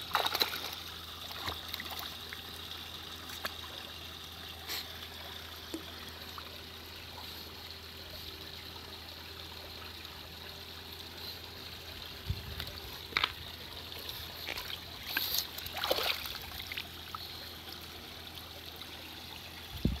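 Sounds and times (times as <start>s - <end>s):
water trickling over stones: 0.0s - 20.0s
dog splashing in water: 0.1s - 2.0s.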